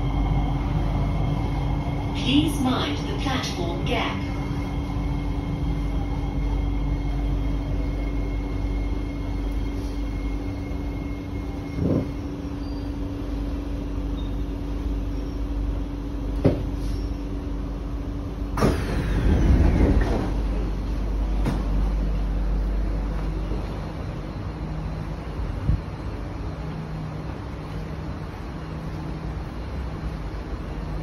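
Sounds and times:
high-pitched whine: 0.0s - 13.2s
train electrical hum: 0.0s - 31.0s
train doors opening: 11.2s - 13.0s, 18.5s - 22.3s.

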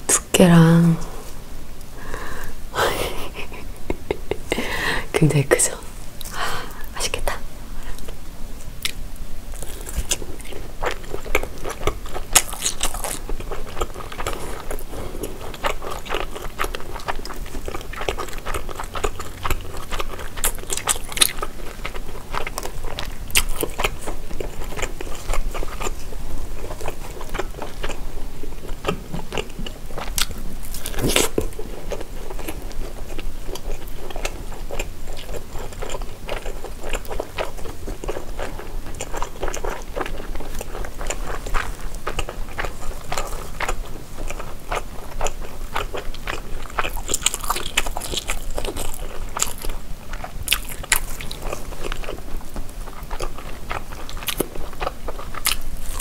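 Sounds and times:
close biting and chewing: 8.8s - 56.0s.

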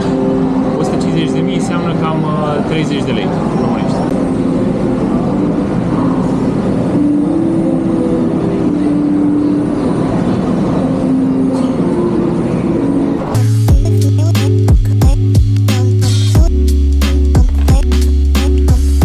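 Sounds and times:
music with strong bass: 13.2s - 19.0s.

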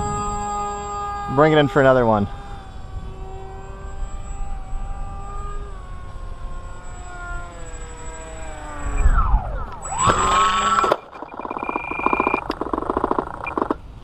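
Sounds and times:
electric motor and propeller whining: 0.0s - 14.0s
fast clicks: 7.5s - 13.8s
short high beep: 10.9s - 12.4s.

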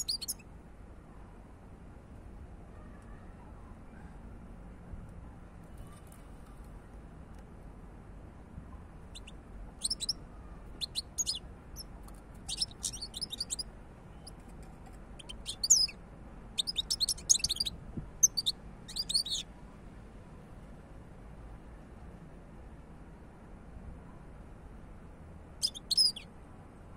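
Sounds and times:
bird twittering song: 0.0s - 0.4s, 9.1s - 14.4s, 15.2s - 16.0s, 16.6s - 19.5s, 25.6s - 26.3s.

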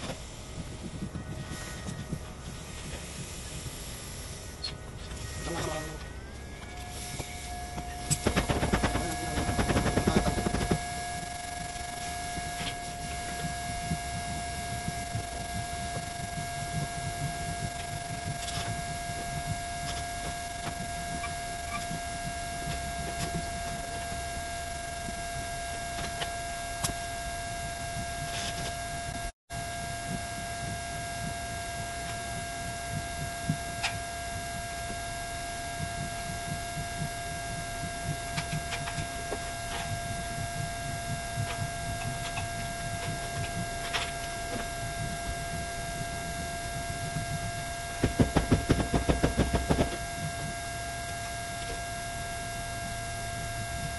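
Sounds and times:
electrical whine and hum: 0.0s - 53.9s.

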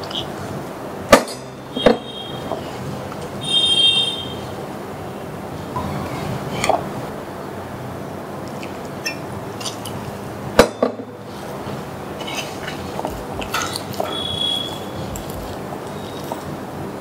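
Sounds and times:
hands mixing dough: 0.0s - 3.8s, 7.8s - 17.0s.

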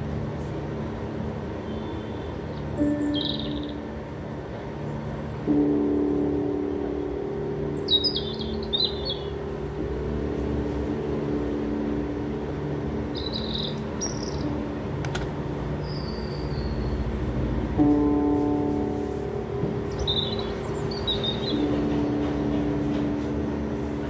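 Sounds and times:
low music drone: 0.0s - 24.0s
bird chirps and trills: 1.7s - 4.0s, 7.5s - 9.6s, 12.8s - 14.8s, 15.8s - 17.2s, 19.8s - 22.4s.

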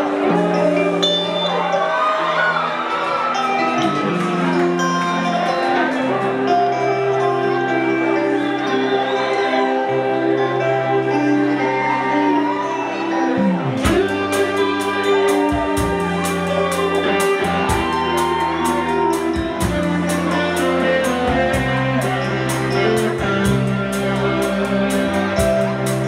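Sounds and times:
bass guitar: 0.0s - 26.0s
electric guitars: 0.0s - 26.0s
drum kit beat with cymbals: 13.8s - 26.0s.

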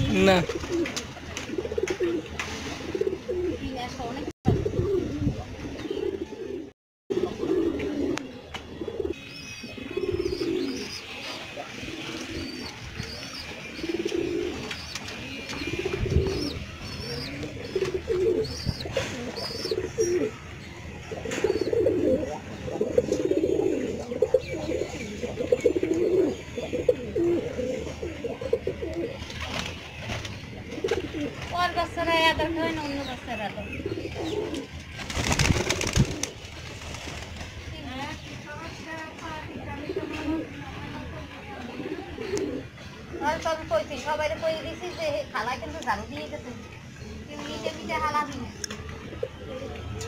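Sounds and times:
pigeons cooing: 0.4s - 3.8s, 4.6s - 29.8s, 30.4s - 31.4s, 33.6s - 36.4s, 41.5s - 43.4s.

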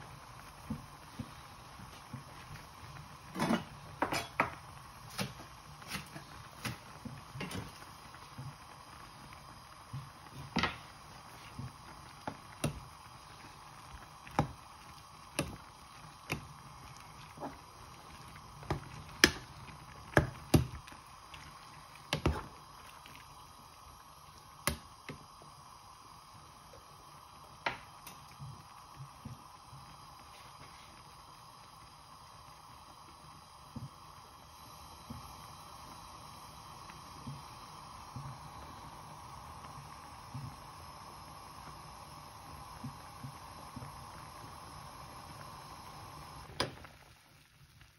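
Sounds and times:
faint steady hiss: 0.0s - 47.9s.

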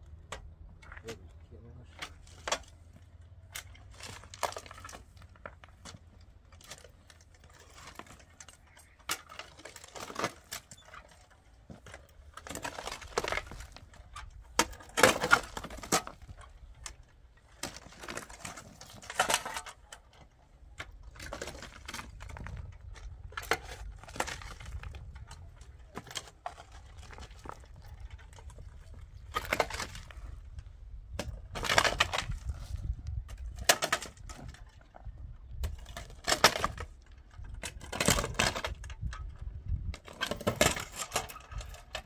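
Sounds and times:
hoes chopping stony soil: 2.0s - 34.5s.

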